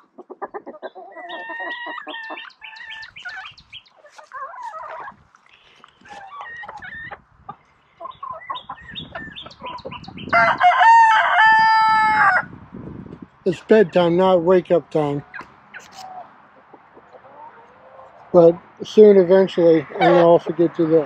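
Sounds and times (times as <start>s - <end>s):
chickens clucking: 0.0s - 12.4s, 13.0s - 21.0s
rooster crowing: 10.3s - 12.5s.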